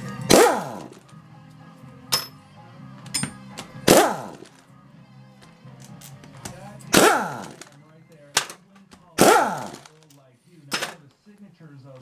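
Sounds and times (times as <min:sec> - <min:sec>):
impact wrench bursts: 0:06.9 - 0:07.8, 0:09.2 - 0:10.0.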